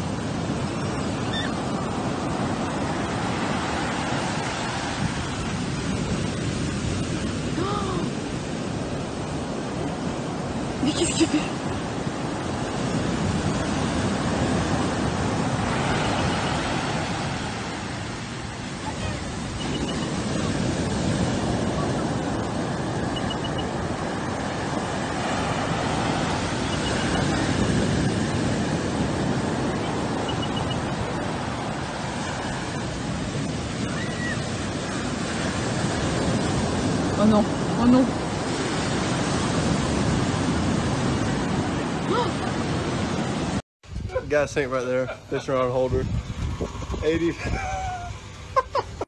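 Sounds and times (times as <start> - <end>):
ocean surf breaking on beach: 0.0 - 49.0.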